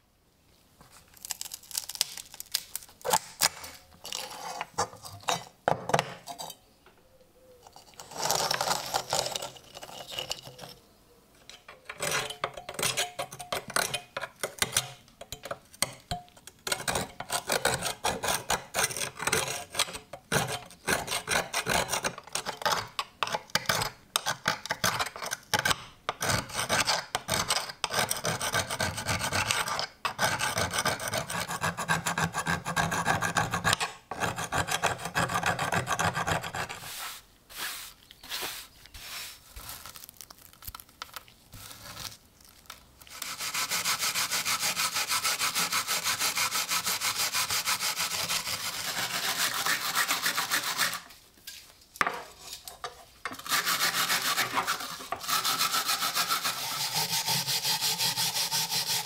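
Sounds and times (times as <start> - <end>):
blade scraping rust off iron: 3.0 - 6.6, 11.4 - 15.4.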